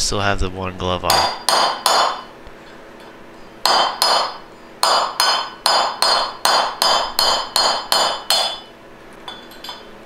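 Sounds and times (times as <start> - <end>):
hammer striking steel punch: 1.1 - 2.3, 3.6 - 8.7.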